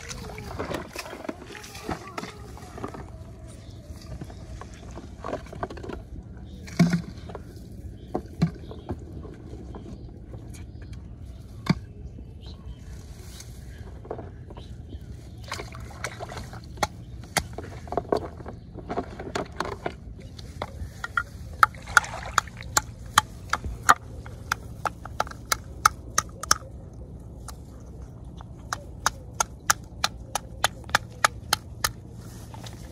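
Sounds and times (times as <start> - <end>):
hands splashing in water: 21.4 - 23.9.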